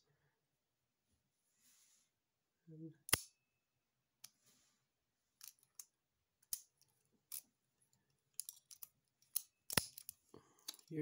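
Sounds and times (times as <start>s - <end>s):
sharp metallic padlock clicks: 3.1s - 3.4s, 8.4s - 10.9s.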